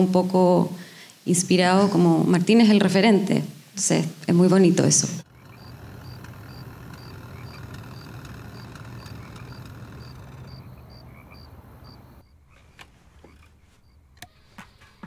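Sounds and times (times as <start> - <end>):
small animal chirping: 5.5 - 12.3.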